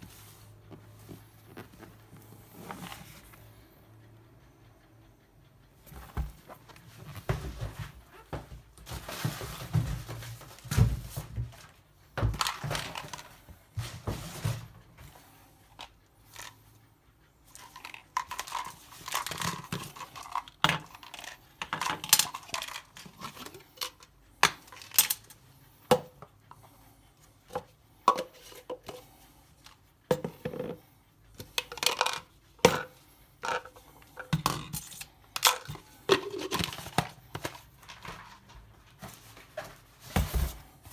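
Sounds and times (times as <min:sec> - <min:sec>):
plastic rustling and scraping: 0:07.0 - 0:14.8, 0:17.6 - 0:25.4, 0:31.5 - 0:40.9
plastic parts clicking and knocking: 0:09.1 - 0:13.4, 0:17.5 - 0:26.3, 0:31.4 - 0:38.5.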